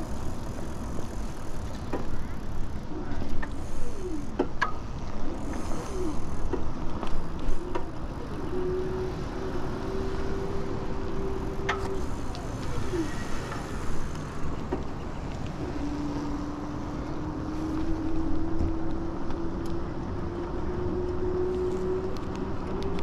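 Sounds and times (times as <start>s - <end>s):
wind and tyres rumbling: 0.0s - 23.0s.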